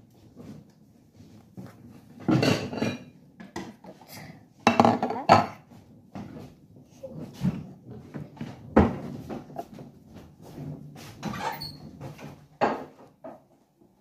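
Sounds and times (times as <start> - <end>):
dishes and utensils clattering: 2.1 - 6.5, 10.6 - 13.5.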